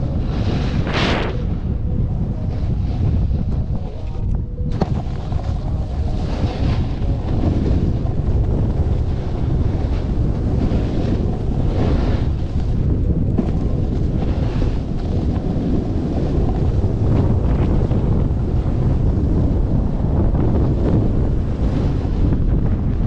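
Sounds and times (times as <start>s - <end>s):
wind buffeting microphone: 0.0s - 23.0s
runner scraping packed snow: 4.8s - 17.4s.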